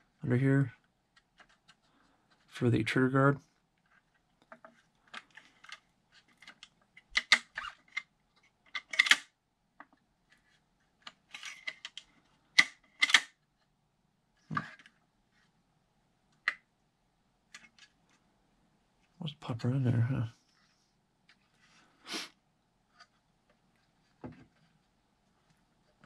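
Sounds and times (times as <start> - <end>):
hard plastic clicks and scrapes: 0.7 - 2.5, 3.8 - 13.3
plastic snaps: 6.4 - 8.1, 8.8 - 9.9, 12.6 - 13.4.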